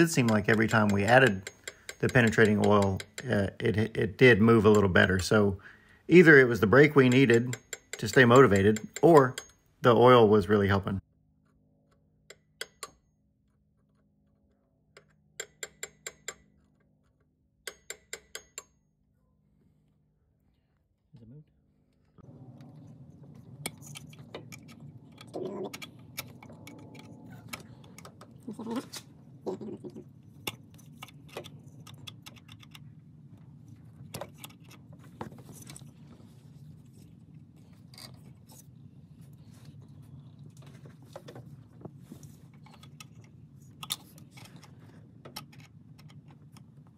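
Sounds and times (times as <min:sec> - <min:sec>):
hammer tapping metal punch: 0:00.0 - 0:03.5, 0:06.7 - 0:09.7, 0:12.3 - 0:13.1, 0:15.0 - 0:16.5, 0:17.6 - 0:18.8
steady low hum: 0:18.8 - 0:46.9.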